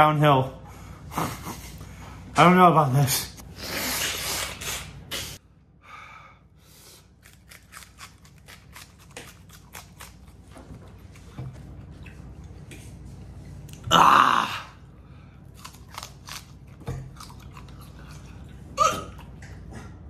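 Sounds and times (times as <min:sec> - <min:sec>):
person blowing nose into tissue: 0:03.5 - 0:05.4
onion crunching while chewed: 0:07.0 - 0:12.4, 0:15.4 - 0:19.7.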